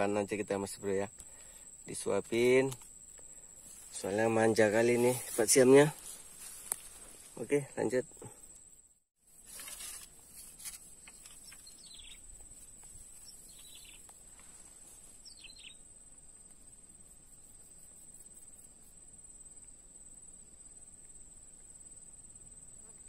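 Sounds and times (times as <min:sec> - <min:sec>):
brief rustle: 0:05.0 - 0:07.3, 0:09.4 - 0:11.8
faint bird chirps: 0:11.0 - 0:12.4, 0:13.2 - 0:14.2, 0:15.0 - 0:15.9.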